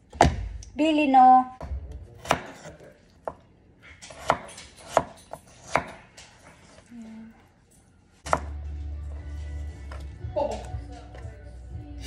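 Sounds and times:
knife chopping on cutting board: 0:02.2 - 0:03.4, 0:04.1 - 0:06.8, 0:08.3 - 0:08.6.

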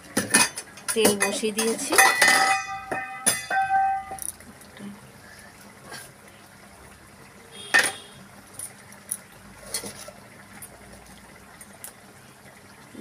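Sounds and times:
utensil clinking on iron pan: 0:00.2 - 0:04.4.

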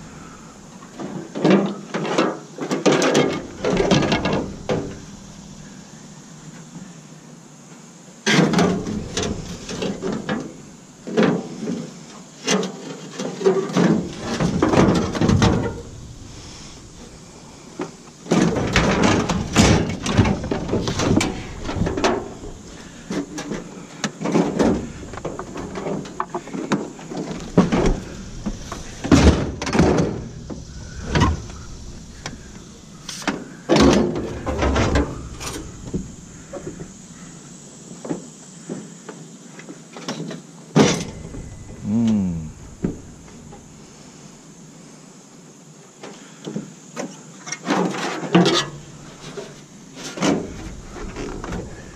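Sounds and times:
scrap metal clanking and scraping: 0:47.8 - 0:51.9.

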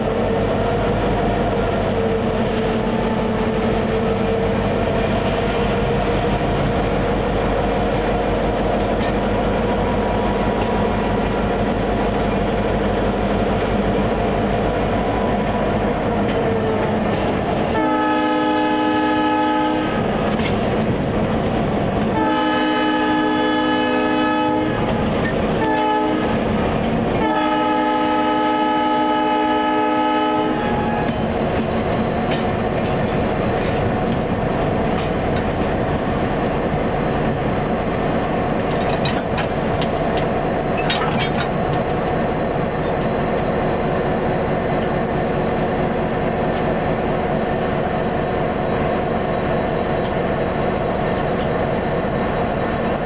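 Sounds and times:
rail clatter: 0:00.0 - 0:19.0, 0:19.8 - 0:23.3, 0:24.6 - 0:27.6, 0:30.4 - 0:47.9
diesel locomotive engine running: 0:00.0 - 0:53.0
locomotive air horn: 0:17.7 - 0:20.2, 0:22.1 - 0:26.5, 0:27.1 - 0:31.3.

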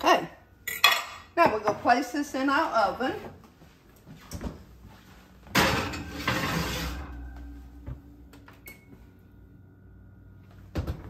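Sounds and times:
oven door scraping rush: 0:05.6 - 0:07.3.

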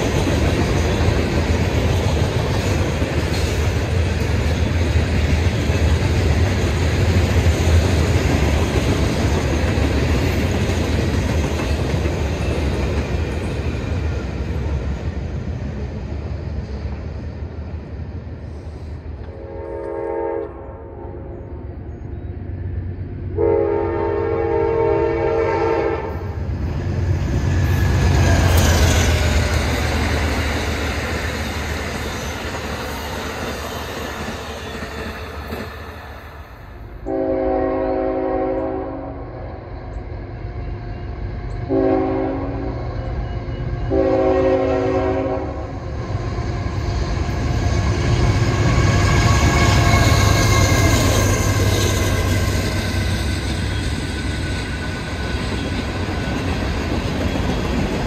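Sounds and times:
freight train rumbling past: 0:00.0 - 0:58.0
train rumbling past: 0:00.0 - 0:58.0
freight train horn blasts: 0:19.2 - 0:21.5, 0:23.3 - 0:26.4, 0:37.0 - 0:39.7, 0:41.6 - 0:45.8
passenger train horn: 0:19.2 - 0:21.6, 0:23.3 - 0:26.5, 0:36.8 - 0:53.9.

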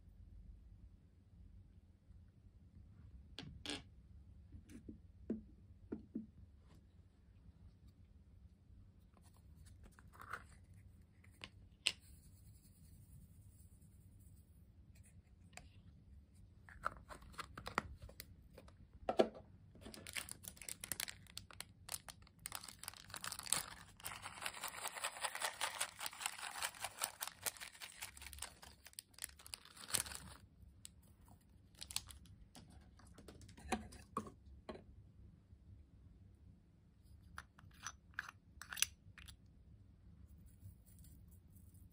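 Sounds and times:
plastic bag crinkling: 0:19.8 - 0:30.4, 0:31.7 - 0:32.3
clicks and taps of containers: 0:32.6 - 0:34.8, 0:37.3 - 0:39.4.

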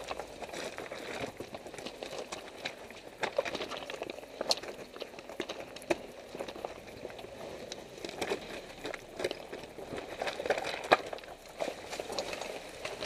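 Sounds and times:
tyres crunching over stones: 0:00.0 - 0:13.0.

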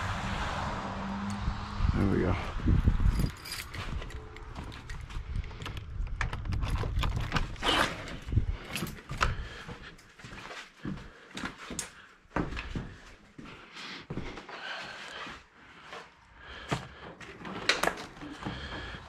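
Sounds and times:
low rumble: 0:00.0 - 0:08.7.

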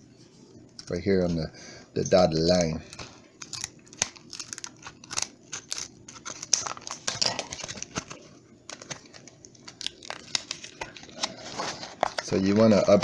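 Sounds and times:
scissors snipping packaging: 0:02.6 - 0:11.4.

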